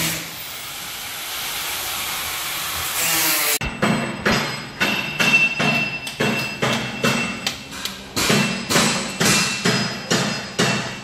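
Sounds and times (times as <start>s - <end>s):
hammer striking metal: 3.6s - 11.0s.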